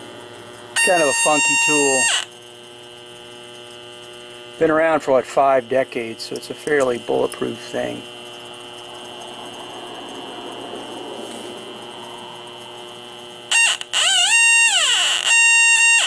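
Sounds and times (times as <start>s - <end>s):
leak detector hum and whine: 0.0s - 16.0s
swooping alarm squawk: 0.8s - 2.3s, 8.8s - 16.0s.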